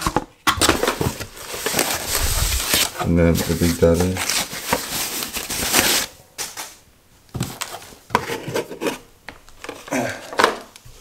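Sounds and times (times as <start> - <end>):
foam sheet crinkling: 0.6 - 6.1.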